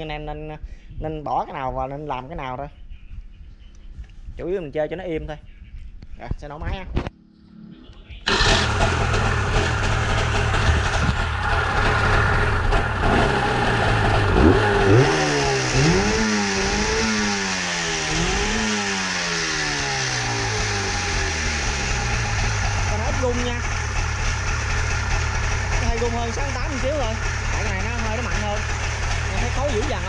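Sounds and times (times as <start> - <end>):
two-stroke engine revving: 8.3 - 30.0.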